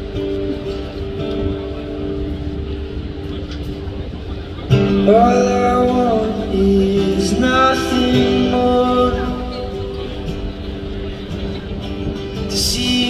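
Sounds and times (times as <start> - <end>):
acoustic guitar playing: 0.0 - 13.0
man singing: 4.8 - 10.3, 12.4 - 13.0.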